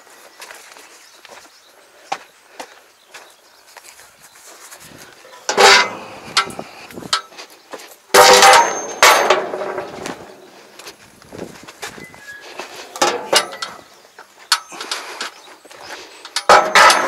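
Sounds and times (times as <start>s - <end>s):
metal ramps clanging: 5.3s - 7.3s, 8.1s - 10.5s, 11.9s - 13.9s, 16.2s - 17.0s
small metal knocks: 5.4s - 7.3s, 8.1s - 10.4s, 12.0s - 15.0s, 16.2s - 17.0s.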